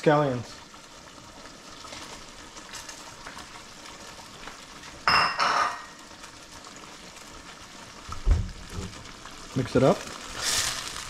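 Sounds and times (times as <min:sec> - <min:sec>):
food sizzling in a pan: 0:00.0 - 0:11.0
metal clangs against pan: 0:05.0 - 0:06.0.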